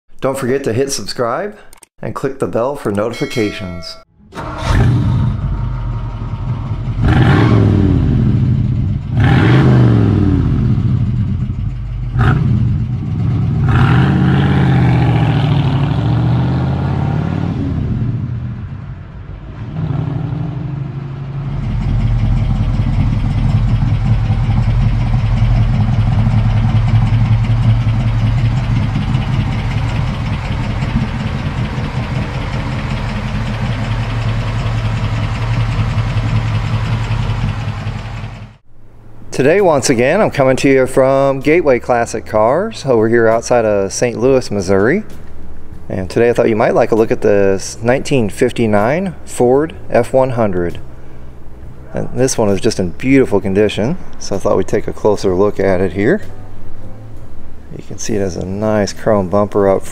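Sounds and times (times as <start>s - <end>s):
truck engine revving: 4.2s - 38.7s.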